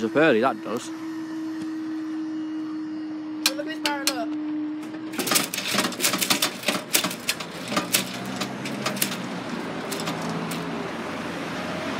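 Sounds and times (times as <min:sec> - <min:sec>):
low mechanism hum: 0:00.0 - 0:11.6
barrier mechanism clicks and rattles: 0:05.1 - 0:10.8.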